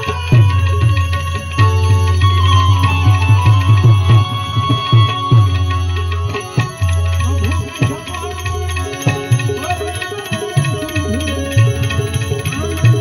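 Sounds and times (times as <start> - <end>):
harmonium melody: 0.0 - 13.0
tabla drumming: 0.0 - 13.0
man singing: 6.3 - 13.0.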